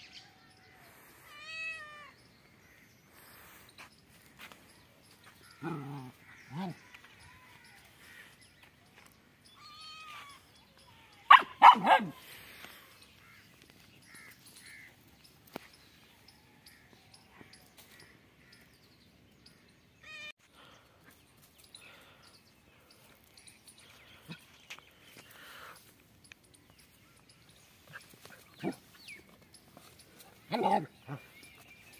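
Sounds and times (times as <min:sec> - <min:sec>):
young dog barking: 0:11.3 - 0:12.2.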